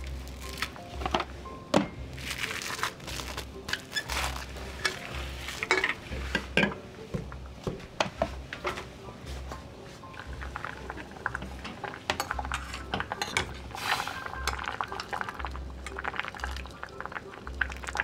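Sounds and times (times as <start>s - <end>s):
plastic cling wrap crinkling: 0.0s - 0.8s, 2.1s - 5.8s
bass pulse of background music: 0.0s - 18.0s.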